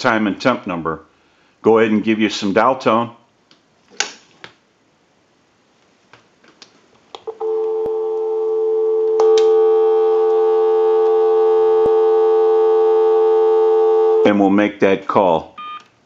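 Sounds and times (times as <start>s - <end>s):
telephone dial tone: 7.2s - 14.3s.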